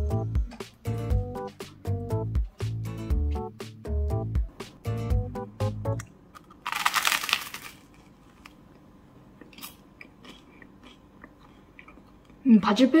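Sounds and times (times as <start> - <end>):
faint crunching chewing: 6.3 - 8.8, 9.4 - 12.4
crunchy bite into bread: 6.4 - 8.2.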